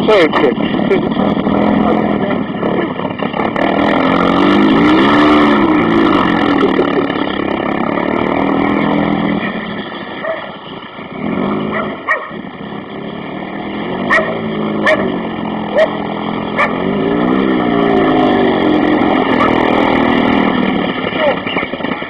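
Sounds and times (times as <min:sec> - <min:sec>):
car engine revving: 0:00.0 - 0:22.0
dog barking: 0:10.2 - 0:10.5, 0:11.7 - 0:12.4, 0:14.1 - 0:15.1, 0:15.7 - 0:16.0, 0:16.6 - 0:16.8, 0:19.3 - 0:19.6.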